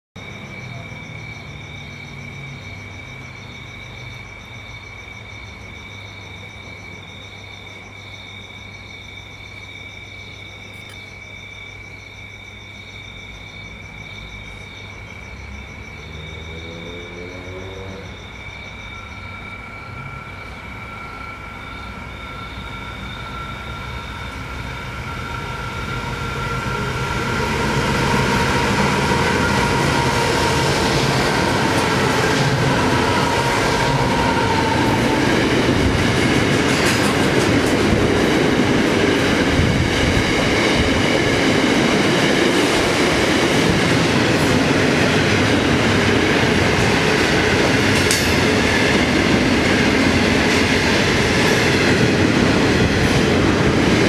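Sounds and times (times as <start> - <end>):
distant locomotive engine rumble: 13.3 - 54.0.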